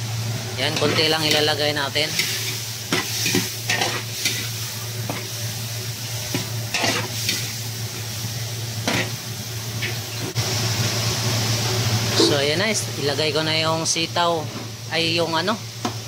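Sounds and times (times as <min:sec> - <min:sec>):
food sizzling in a wok: 0:00.0 - 0:16.0
metal ladle scraping a pan: 0:02.0 - 0:05.3, 0:06.3 - 0:07.5.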